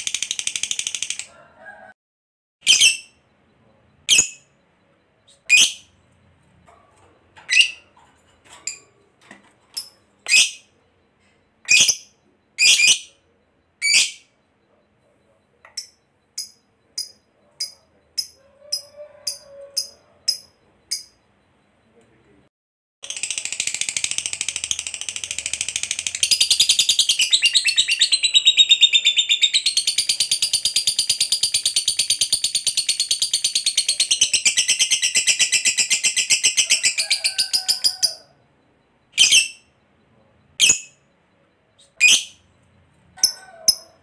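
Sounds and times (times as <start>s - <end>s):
high bird chirps: 2.6s - 6.8s, 7.4s - 8.0s, 9.8s - 21.9s, 23.0s - 38.4s, 39.1s - 39.8s, 40.6s - 42.6s.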